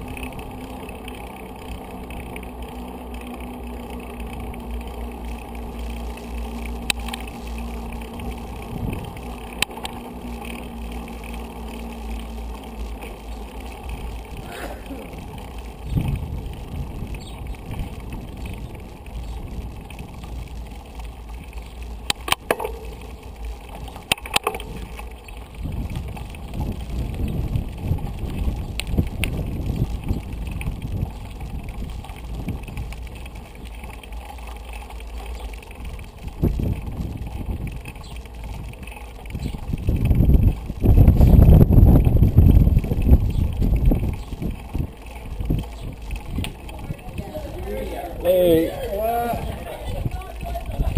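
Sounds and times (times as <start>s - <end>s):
low rumble: 0.0s - 50.9s
wind noise on microphone: 6.7s - 10.3s, 13.8s - 34.0s, 35.7s - 50.9s.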